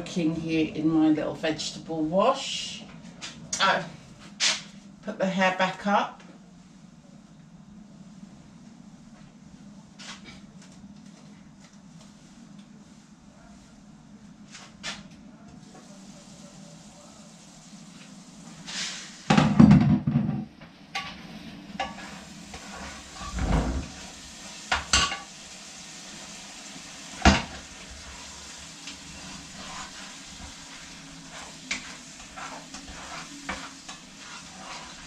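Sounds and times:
faint sizzle: 0:00.0 - 0:19.6, 0:20.6 - 0:35.0
utensil stirring and knocking pot: 0:21.8 - 0:24.0, 0:27.1 - 0:35.0.

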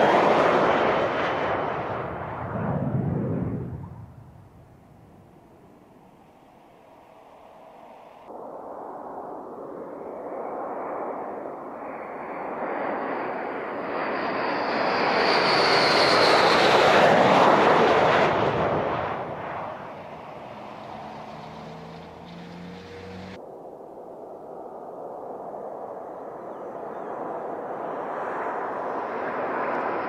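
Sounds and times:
fighter jet passing: 0:00.0 - 0:08.1, 0:09.2 - 0:23.4, 0:27.0 - 0:30.0
high jet whine: 0:15.4 - 0:23.4.

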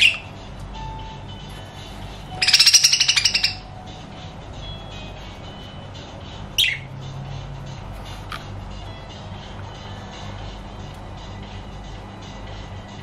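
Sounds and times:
bird squawk: 0:00.0 - 0:00.3, 0:02.4 - 0:03.7, 0:06.6 - 0:06.9
budgerigars chattering: 0:02.4 - 0:03.7.

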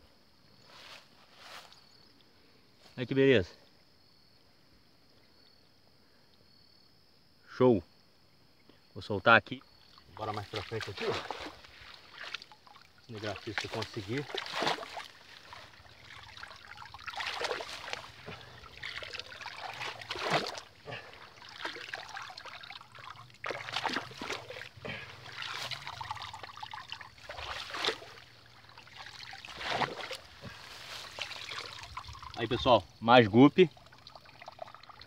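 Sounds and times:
muddy water sloshing and trickling: 0:09.8 - 0:35.0
sieve swishing through water: 0:10.2 - 0:32.4.

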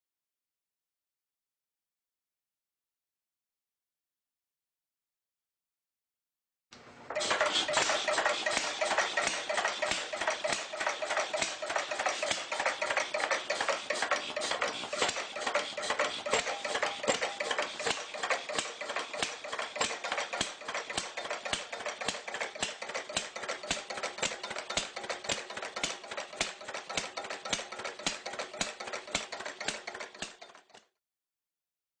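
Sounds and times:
gas engine clattering: 0:07.1 - 0:30.8.

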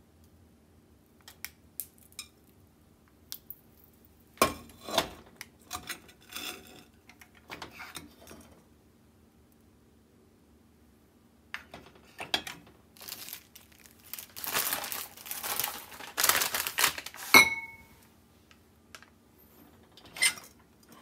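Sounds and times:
scraping against pot: 0:04.5 - 0:07.0.

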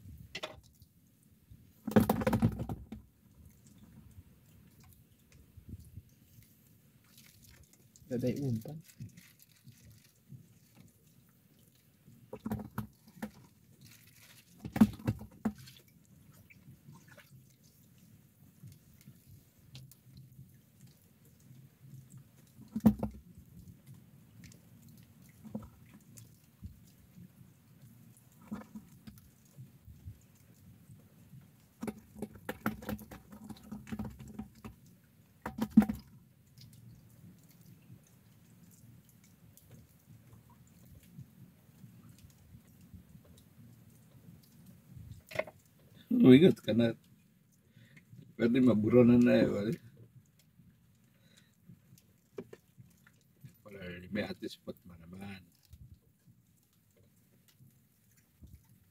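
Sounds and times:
waves lapping against hull: 0:01.5 - 0:58.9
water slapping against boat hull: 0:01.8 - 0:03.1, 0:12.3 - 0:13.5, 0:14.5 - 0:15.8, 0:22.6 - 0:23.3, 0:35.4 - 0:36.1.

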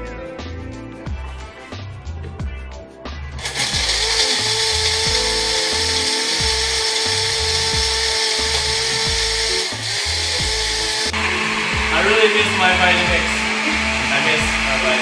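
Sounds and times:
blender motor whining: 0:03.4 - 0:15.0.

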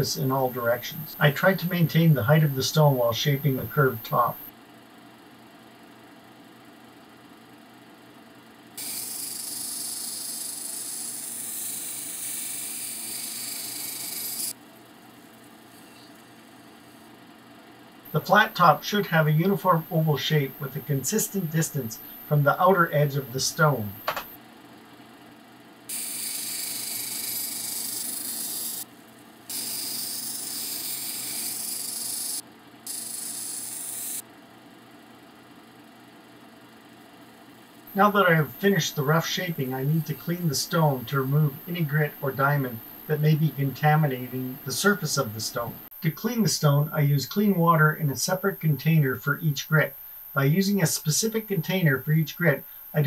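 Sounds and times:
grinding machine running: 0:08.8 - 0:14.5
stone grinding on diamond wheel: 0:08.8 - 0:14.5, 0:25.9 - 0:28.8, 0:29.5 - 0:34.2.

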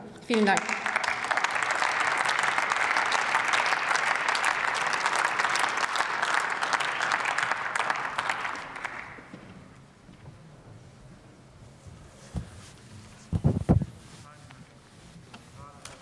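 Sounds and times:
crowd applauding: 0:00.2 - 0:09.7.

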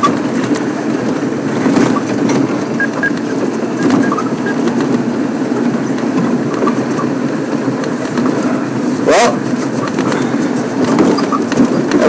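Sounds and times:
vehicle body rattles and knocks: 0:00.0 - 0:12.0
vehicle engine and road noise: 0:00.0 - 0:12.0.

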